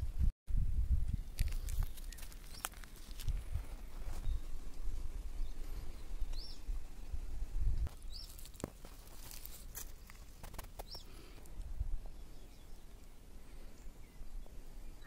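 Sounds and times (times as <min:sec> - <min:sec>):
bird chirping: 0:04.1 - 0:04.6, 0:05.4 - 0:06.7, 0:07.9 - 0:08.5, 0:09.4 - 0:11.4, 0:12.0 - 0:15.0.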